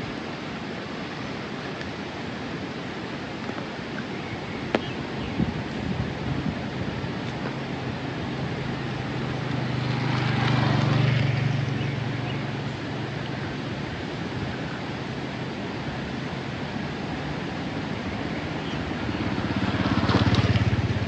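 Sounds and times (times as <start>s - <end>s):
steady rain hiss: 0.0s - 21.0s
vehicle engine running: 7.0s - 21.0s.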